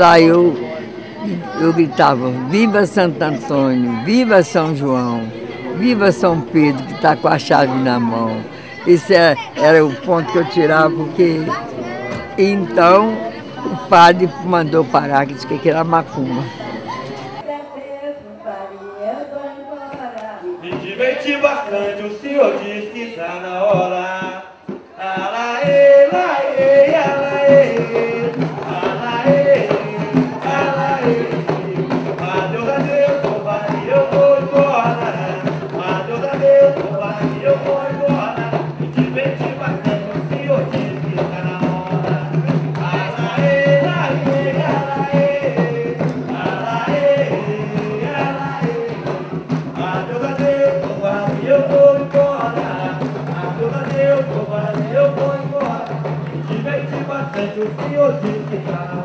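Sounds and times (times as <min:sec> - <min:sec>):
hand drums beating: 0:01.2 - 0:16.6, 0:25.6 - 0:59.0
person singing: 0:01.2 - 0:17.0.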